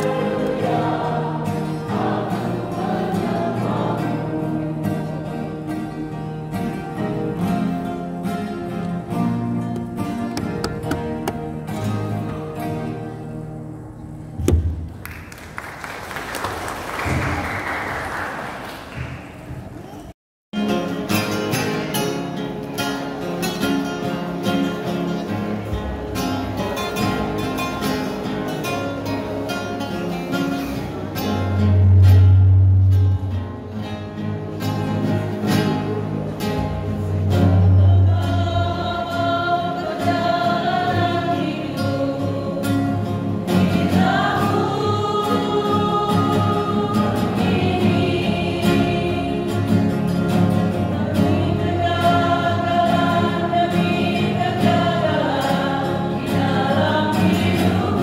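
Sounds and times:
choir singing gospel song: 0.0s - 7.2s, 35.4s - 58.0s.

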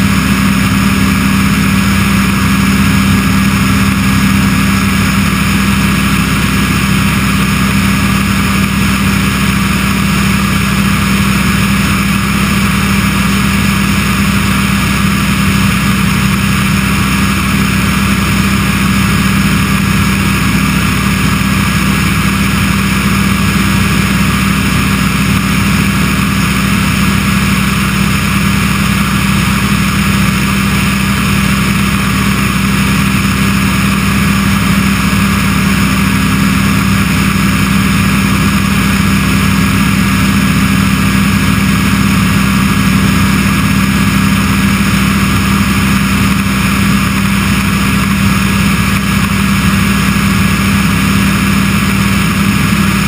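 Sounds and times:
aircraft engine and propeller droning: 0.0s - 53.0s.

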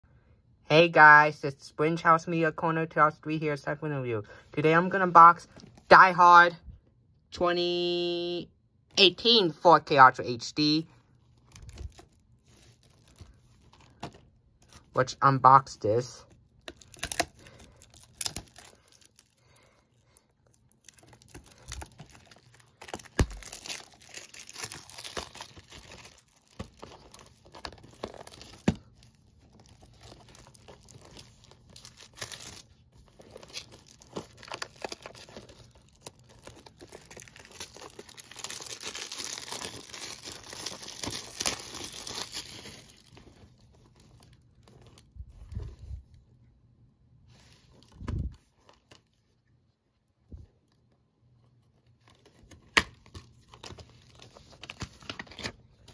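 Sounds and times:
plastic shrink wrap crinkling: 11.2s - 15.0s, 16.2s - 45.9s.

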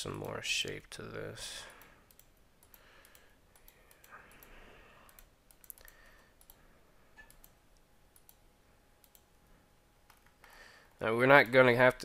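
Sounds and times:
computer mouse and keyboard clicks: 1.8s - 6.6s, 7.2s - 8.4s, 10.1s - 10.6s.

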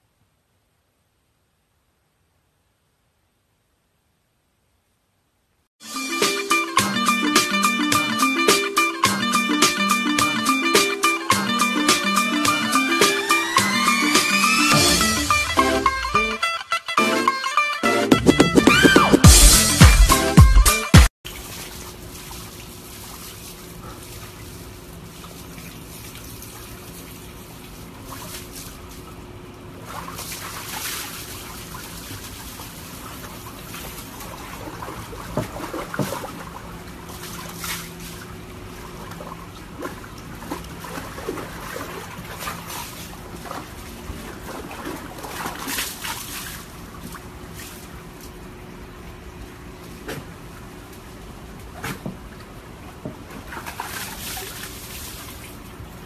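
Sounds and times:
water splashing in a plastic tub: 21.2s - 48.5s, 49.7s - 56.0s
low water trickle: 21.3s - 56.0s.

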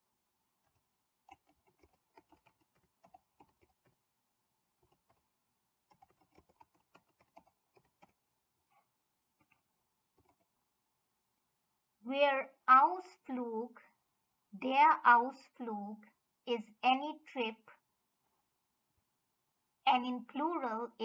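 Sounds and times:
keyboard typing: 0.6s - 4.0s, 4.8s - 8.2s, 9.4s - 10.6s.

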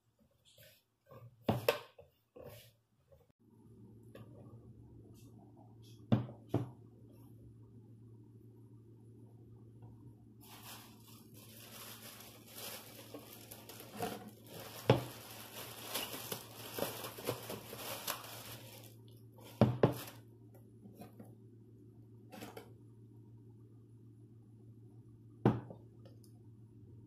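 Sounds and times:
plastic wrap crinkling: 10.4s - 20.2s.

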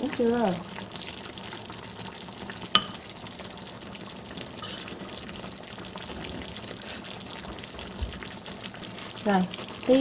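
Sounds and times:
sauce bubbling and sizzling: 0.0s - 10.0s
metal spoon clinking on pot: 2.8s - 3.0s, 4.6s - 4.9s.

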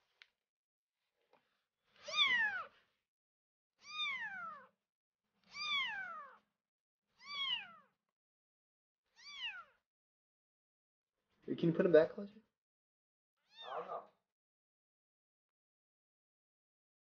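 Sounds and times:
kitten mewing: 2.0s - 2.7s, 5.5s - 6.4s, 7.2s - 7.9s, 13.5s - 14.1s.

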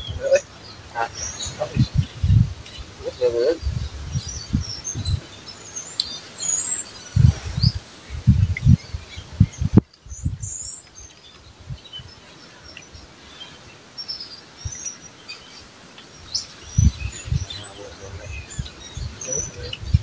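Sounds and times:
small birds chirping: 0.0s - 20.0s
steady outdoor hiss: 0.0s - 20.0s
low thumps and bumps: 1.0s - 2.6s.

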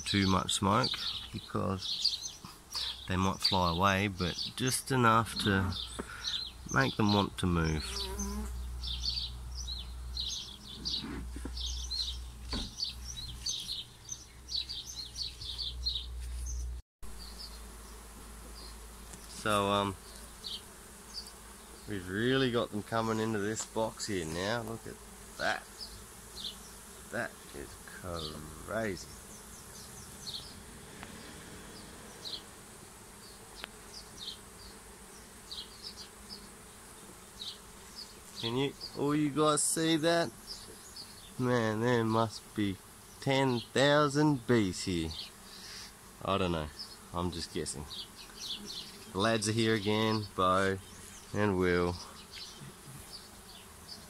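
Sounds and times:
bees buzzing: 0.0s - 54.0s
faint knocks: 12.5s - 12.8s.

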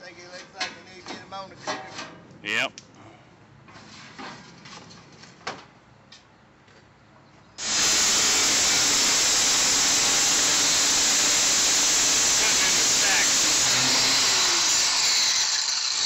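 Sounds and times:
angle grinder cutting steel: 7.6s - 16.0s.

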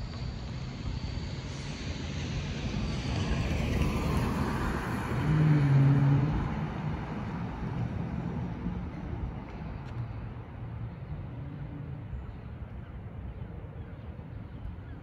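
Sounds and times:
airliner engine rumble and whine: 0.0s - 5.4s
car driving past: 2.9s - 8.8s.

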